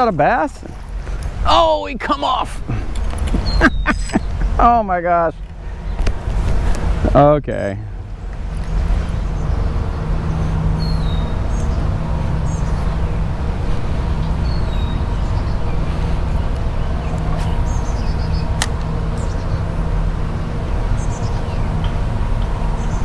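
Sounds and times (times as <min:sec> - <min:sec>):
road traffic rumble: 0:00.0 - 0:23.0
bird chirps: 0:03.4 - 0:04.4.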